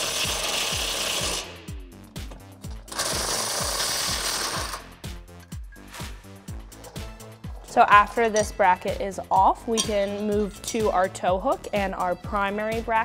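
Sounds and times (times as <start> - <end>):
background music with a beat: 0.1 - 13.0
impact wrench hammering: 2.9 - 4.9.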